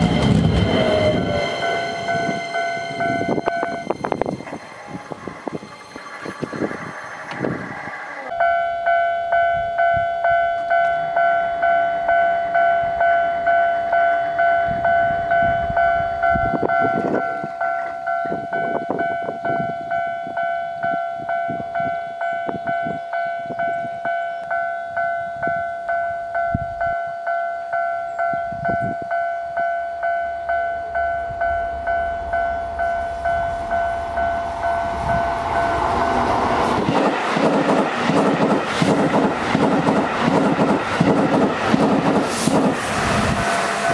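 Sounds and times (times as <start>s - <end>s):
electric train rumble: 0.0s - 43.9s
level crossing bell ringing: 8.3s - 35.0s.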